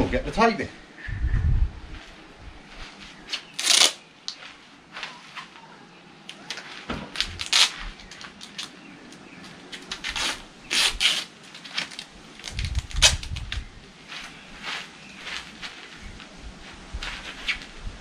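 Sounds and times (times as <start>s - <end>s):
adhesive tape ripping: 3.3s - 4.0s, 7.2s - 8.8s, 9.7s - 13.6s.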